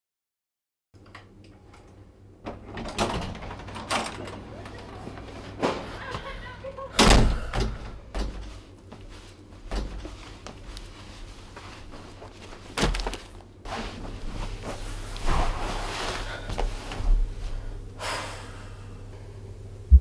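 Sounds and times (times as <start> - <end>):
low steady hum: 6.0 - 20.0
clothing rustling: 8.4 - 17.5
footsteps on carpet: 8.5 - 12.8.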